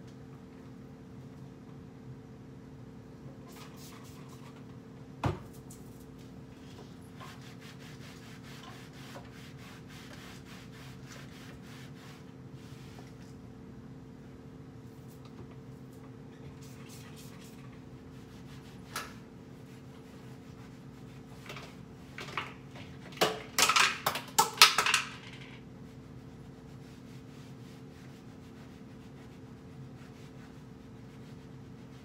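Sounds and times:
steady low hum: 0:00.0 - 0:22.8, 0:25.6 - 0:32.0.

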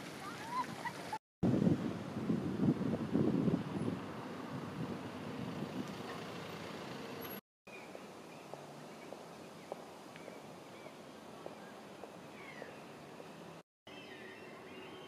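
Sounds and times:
moving vehicle rumble: 0:00.0 - 0:07.4.

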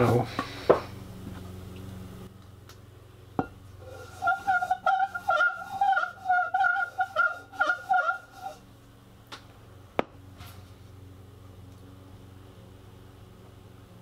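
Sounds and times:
piston ring squeaking on sandpaper: 0:03.8 - 0:08.7.

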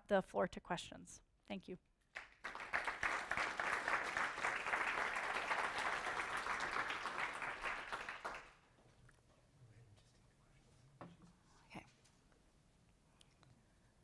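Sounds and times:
audience applauding: 0:02.2 - 0:08.6.

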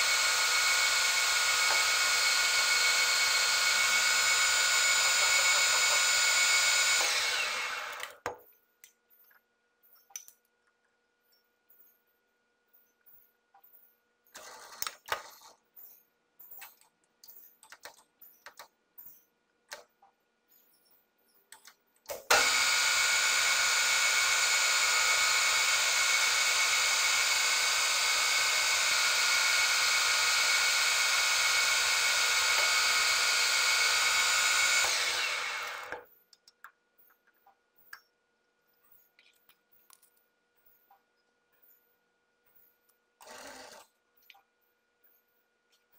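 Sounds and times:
metal lathe whining: 0:00.0 - 0:08.2, 0:22.3 - 0:36.0.

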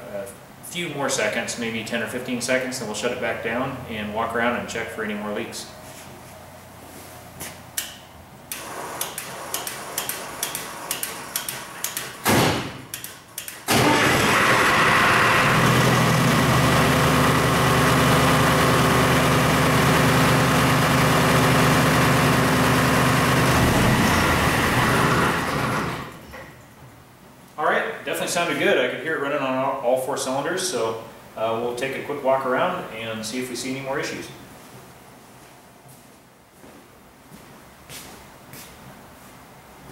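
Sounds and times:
diesel generator engine: 0:13.7 - 0:26.4.

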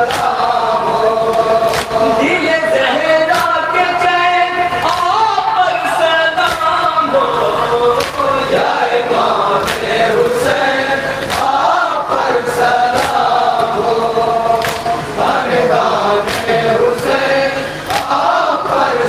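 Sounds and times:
men chanting in unison: 0:00.0 - 0:19.0
hands slapping chests: 0:01.7 - 0:02.0, 0:11.3 - 0:11.6, 0:14.6 - 0:14.9.

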